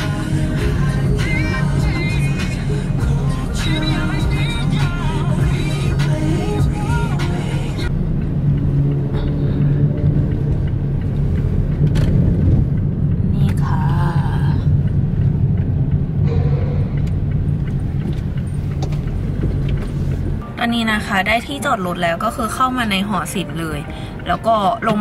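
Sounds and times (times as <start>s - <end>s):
music playing: 0.0s - 9.9s, 20.4s - 25.0s
car engine and road noise: 0.0s - 25.0s.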